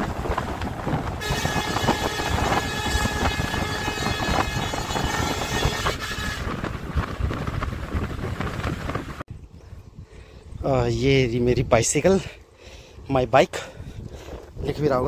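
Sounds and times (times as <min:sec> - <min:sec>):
road rumble: 0:00.0 - 0:14.8
wind buffeting microphone: 0:00.0 - 0:15.0.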